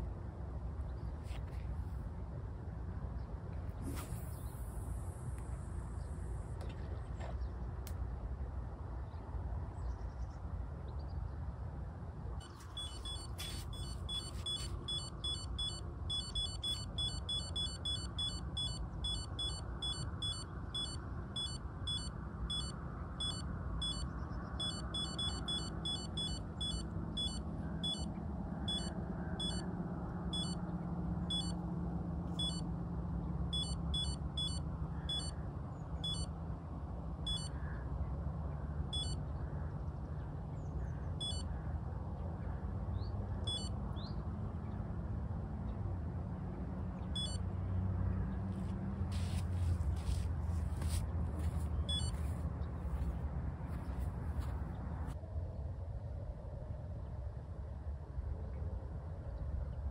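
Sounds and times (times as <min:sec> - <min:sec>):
bite alarm beeping: 0:12.4 - 0:28.1, 0:28.7 - 0:29.7, 0:30.3 - 0:30.6, 0:31.3 - 0:31.6, 0:32.4 - 0:32.7, 0:33.5 - 0:35.4, 0:36.0 - 0:36.3, 0:37.3 - 0:37.6, 0:38.9 - 0:39.2, 0:41.2 - 0:41.5, 0:43.5 - 0:43.7, 0:47.2 - 0:47.4, 0:51.7 - 0:52.4.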